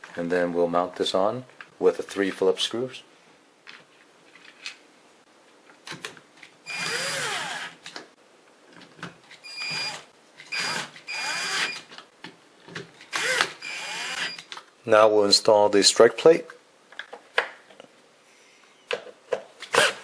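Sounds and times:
cordless drill driving screws: 6.7s - 7.8s, 9.5s - 11.8s, 13.1s - 14.4s, 19.7s - 20.0s.

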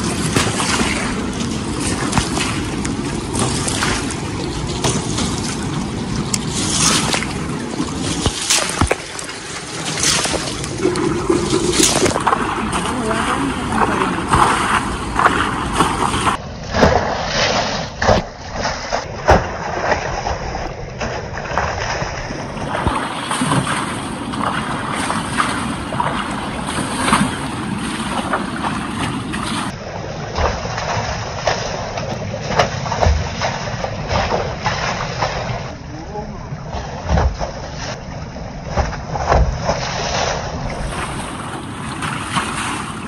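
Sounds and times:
river water rushing: 0.0s - 16.3s
water splashing against tractors: 0.0s - 43.0s.

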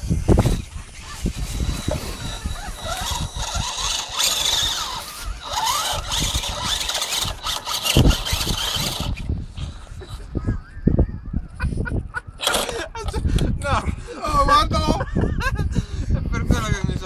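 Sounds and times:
electric motor whining: 0.0s - 9.9s.

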